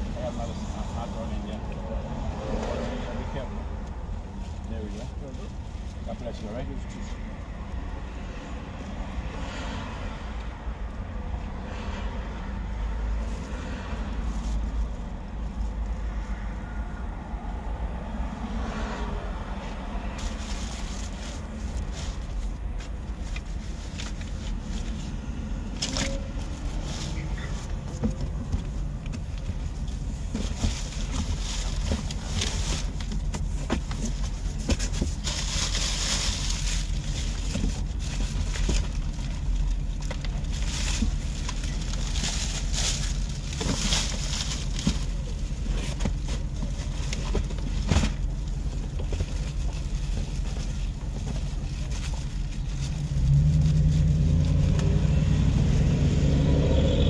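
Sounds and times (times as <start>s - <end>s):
plastic bag crinkling: 34.4s - 50.9s.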